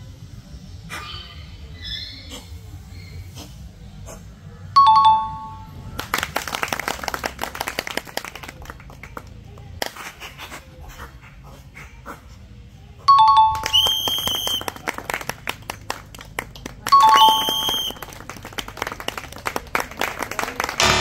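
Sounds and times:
two-tone ding-dong chime: 4.8 - 5.8, 13.1 - 13.7, 17.0 - 17.5
low background music: 20.8 - 21.0.

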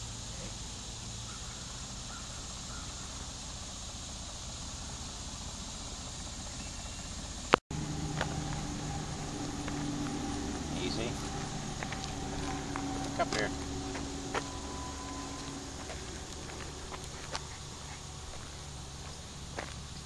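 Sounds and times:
low hum: 0.0 - 20.0
outdoor background hiss: 0.0 - 20.0
humming held tones: 6.6 - 20.0.

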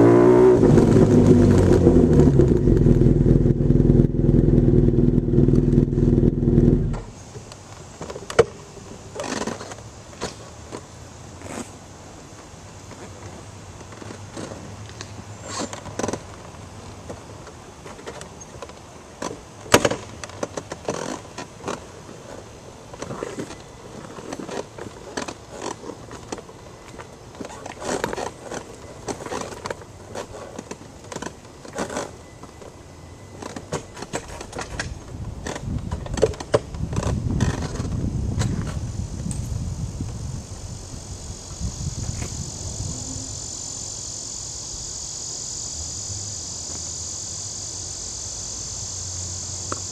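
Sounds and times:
faint low hum: 37.7 - 49.9.

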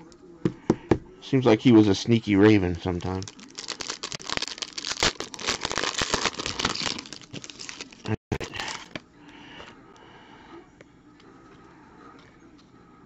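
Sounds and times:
wrapper crinkling and tearing: 3.0 - 9.0.

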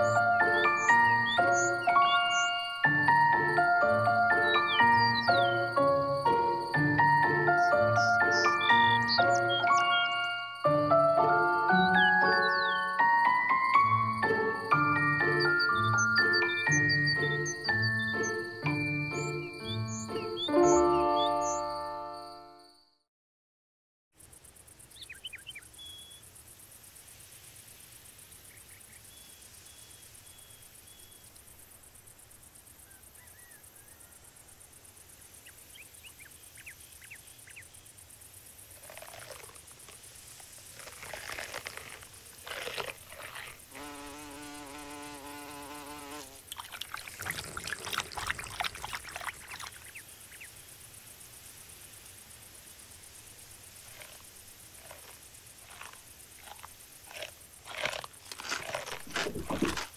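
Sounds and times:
insects buzzing past: 0.0 - 22.8, 24.2 - 59.9
insect hiss: 0.0 - 22.9, 24.2 - 59.9
insect chirps: 0.0 - 23.0, 24.2 - 59.9
rapid clicks and chirps: 38.6 - 42.6
fly buzzing: 38.8 - 49.7, 53.8 - 59.9.

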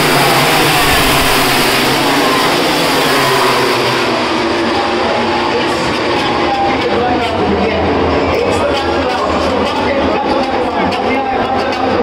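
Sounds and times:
racing motorcycles passing at speed: 0.0 - 6.1.

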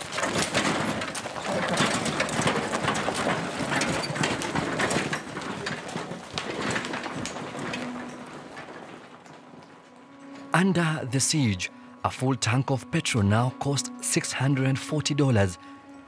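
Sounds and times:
cart wheels crunching on gravel: 0.0 - 16.0
hooves clopping on gravel: 0.0 - 16.0.

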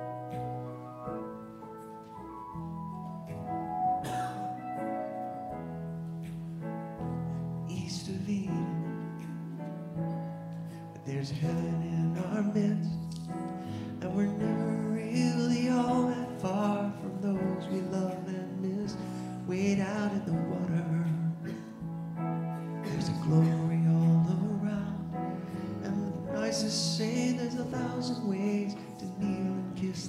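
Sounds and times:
electric keyboard chords: 0.0 - 30.0
man singing: 7.6 - 9.4, 11.0 - 21.7, 22.8 - 30.0.

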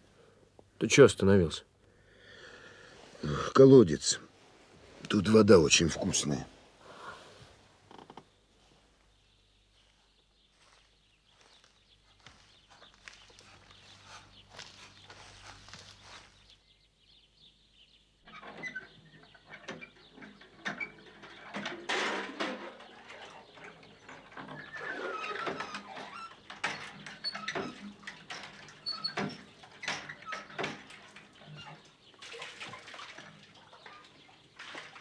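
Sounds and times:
well bucket clanks and knocks: 18.3 - 35.0
water splashing: 30.7 - 35.0.

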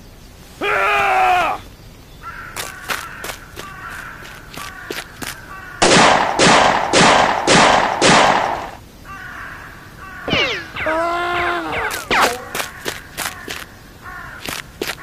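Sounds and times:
pistol shots: 5.8 - 8.8.

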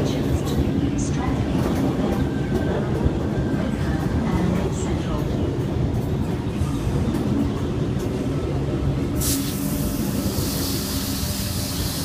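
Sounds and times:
electric train rumbling past: 0.0 - 12.0.

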